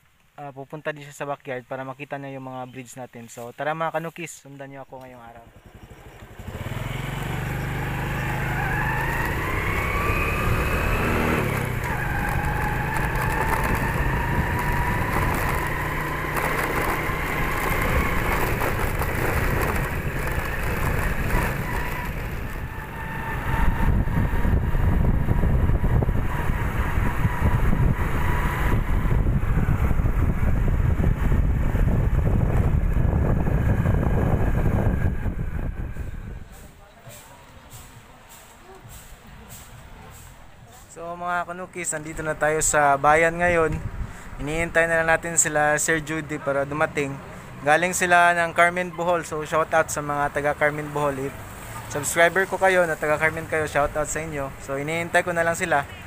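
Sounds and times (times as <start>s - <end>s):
small motorcycle engine whine: 5.4s - 36.5s
wind rumble on microphone: 7.9s - 36.7s, 43.1s - 44.8s.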